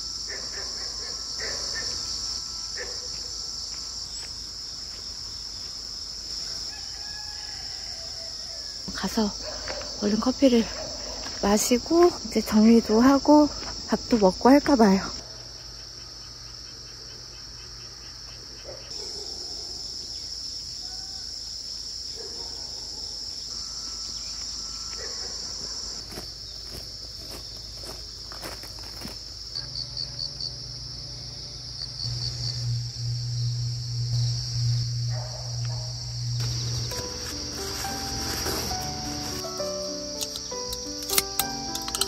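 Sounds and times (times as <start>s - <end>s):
crickets chirring: 0.0s - 42.0s
low hum: 29.6s - 39.4s.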